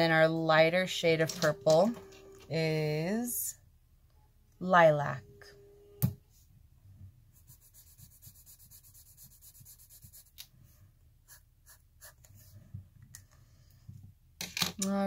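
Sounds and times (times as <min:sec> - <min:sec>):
marker scratching on paper: 0:07.4 - 0:10.4, 0:11.3 - 0:12.6.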